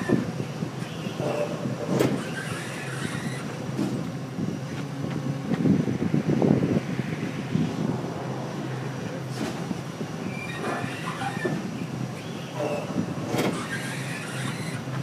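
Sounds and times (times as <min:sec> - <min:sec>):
squeals: 0:00.8 - 0:03.6, 0:10.2 - 0:15.0.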